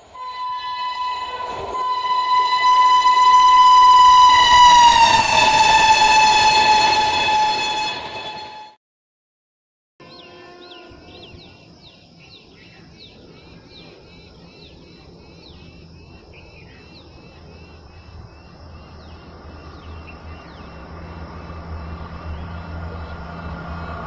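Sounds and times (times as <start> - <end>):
train rumble: 0.0 - 8.8, 10.0 - 24.0
birds chirping: 10.0 - 24.0.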